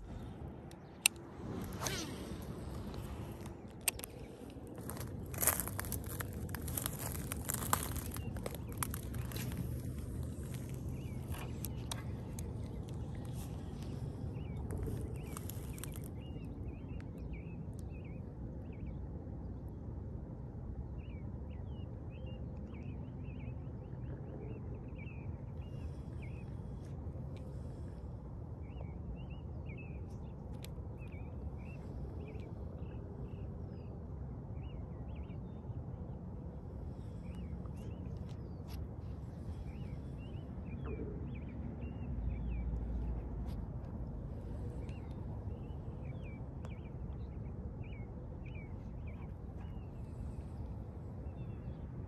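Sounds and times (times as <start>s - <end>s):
steady low rumble: 0.0s - 52.0s
small birds chirping: 2.7s - 18.8s.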